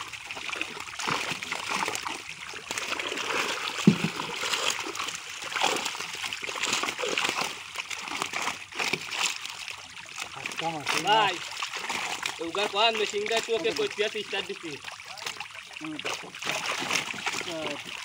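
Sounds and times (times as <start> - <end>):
fish thrashing and splashing: 0.0 - 18.0
sharp slap in water: 3.8 - 4.2.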